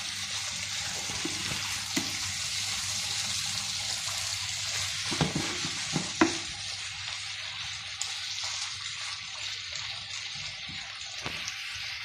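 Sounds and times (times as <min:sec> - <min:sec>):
food sizzling in a frying pan: 0:00.0 - 0:12.0
spatula knocking against pan: 0:05.1 - 0:06.5.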